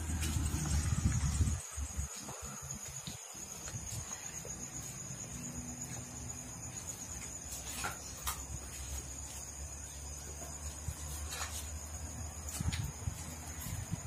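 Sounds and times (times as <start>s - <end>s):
low rumble: 0.0s - 2.1s
crickets trilling: 0.0s - 14.0s.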